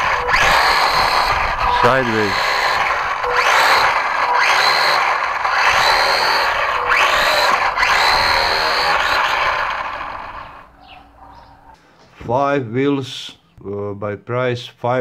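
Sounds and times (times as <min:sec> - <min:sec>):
small electric motors whining: 0:00.0 - 0:11.0.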